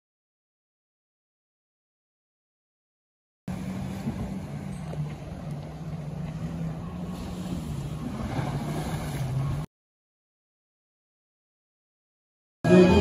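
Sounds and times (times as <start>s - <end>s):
motorboat engine humming: 3.5s - 9.7s
small waves washing: 3.5s - 9.7s.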